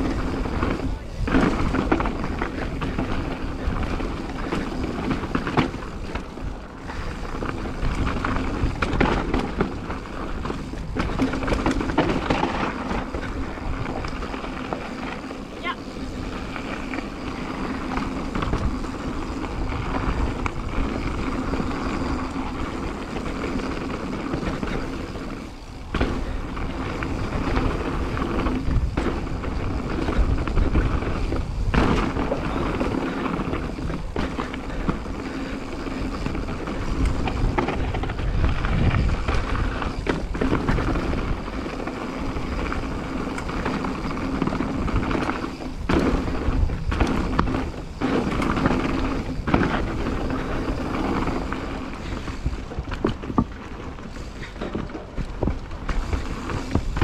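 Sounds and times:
bike tyres rumbling on dirt: 0:00.0 - 0:57.0
wind on camera: 0:16.0 - 0:57.0.

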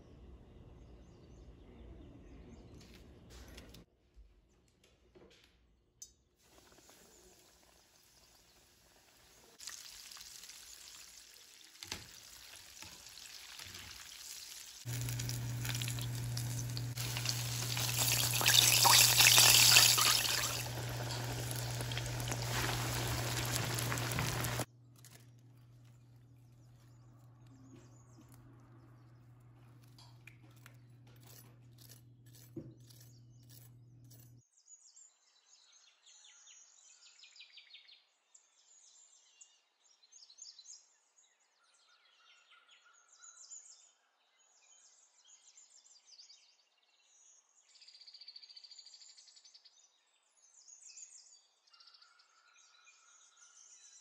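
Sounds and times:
chicken deep-frying in oil: 0:06.4 - 0:24.7
steady low hum: 0:14.9 - 0:34.4.

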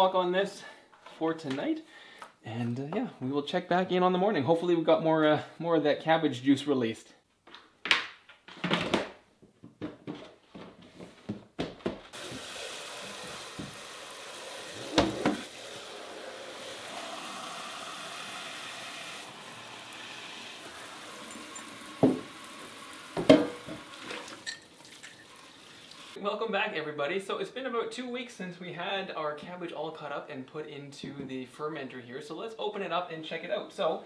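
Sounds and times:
tap running into sink: 0:12.2 - 0:14.1, 0:14.8 - 0:15.6, 0:20.8 - 0:25.3.

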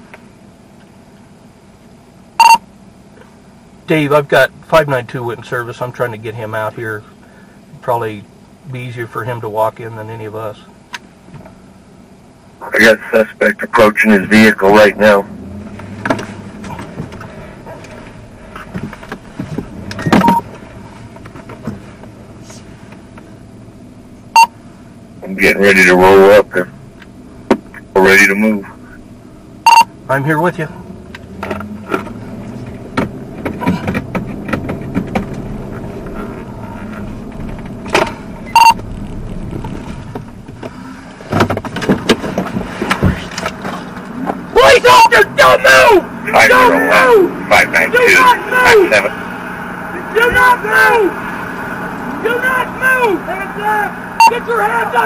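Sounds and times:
car engine and road hum: 0:00.0 - 0:55.0
short beep: 0:02.4 - 0:02.6, 0:20.0 - 0:20.5, 0:24.4 - 0:24.6, 0:29.6 - 0:29.9, 0:38.5 - 0:38.8, 0:54.2 - 0:54.5.

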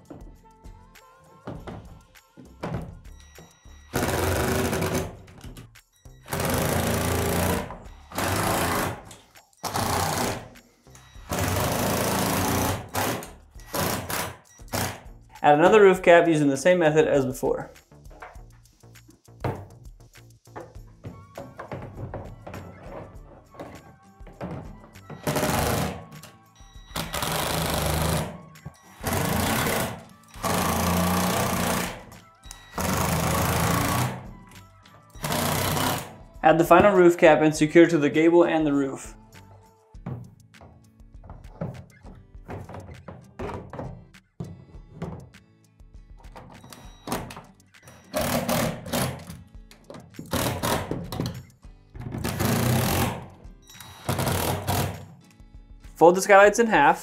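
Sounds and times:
background music: 0:00.0 - 0:57.0
impact driver driving screws: 0:03.9 - 0:05.4, 0:06.3 - 0:10.5, 0:11.2 - 0:15.1, 0:24.4 - 0:26.4, 0:27.0 - 0:28.4, 0:29.0 - 0:34.2, 0:35.2 - 0:36.2, 0:46.4 - 0:55.1.

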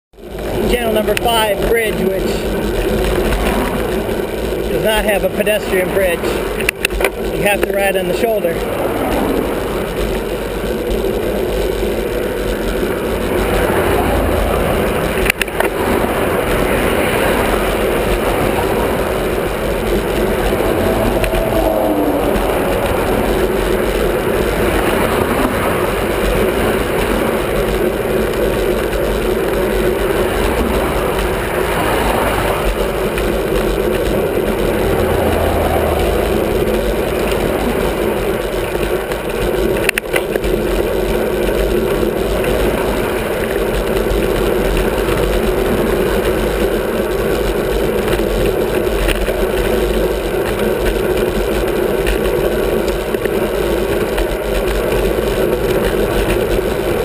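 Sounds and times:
wind and road noise: 0:00.1 - 0:57.0
cars passing: 0:00.2 - 0:39.8.

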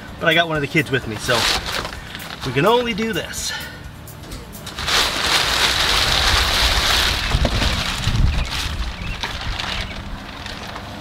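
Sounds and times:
plastic sheeting crinkling: 0:01.1 - 0:03.0, 0:04.6 - 0:11.0.

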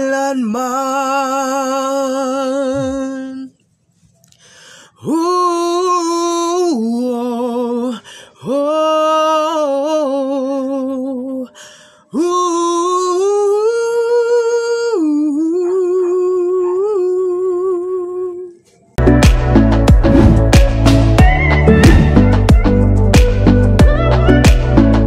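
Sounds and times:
man singing unaccompanied: 0:00.0 - 0:03.6, 0:05.0 - 0:18.6
loud music with a beat: 0:19.0 - 0:25.0.

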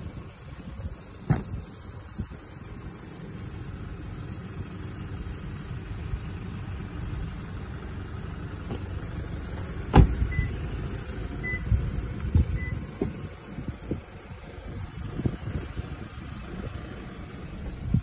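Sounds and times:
low rumble: 0:00.0 - 0:18.0
car door slamming shut: 0:01.2 - 0:01.6, 0:09.9 - 0:10.4.

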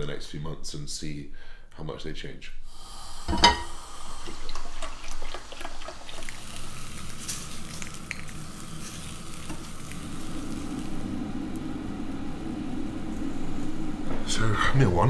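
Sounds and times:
bacon sizzling in a pan: 0:02.7 - 0:14.0.

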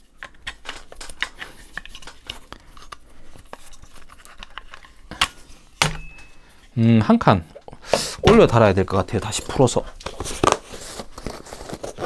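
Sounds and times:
rifle parts clicking and rattling: 0:00.2 - 0:06.3.

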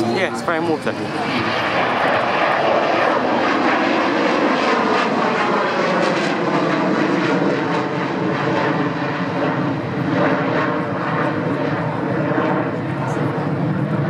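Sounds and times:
rushing jet noise: 0:00.0 - 0:11.1.

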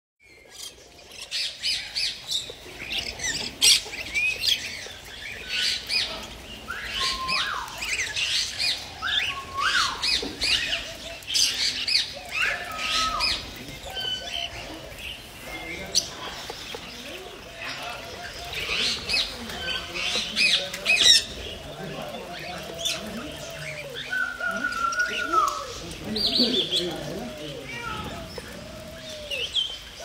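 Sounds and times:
parrots chattering and squawking: 0:00.4 - 0:30.0.

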